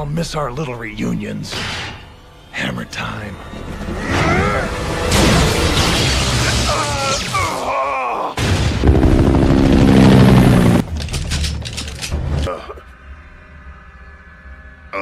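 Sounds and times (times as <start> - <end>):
low steady drone: 0.0 - 6.9, 8.8 - 15.0
background music: 0.0 - 8.1, 9.1 - 15.0
heavy booms and impacts: 4.1 - 7.0, 8.4 - 10.9
rapid clicks: 10.8 - 12.5.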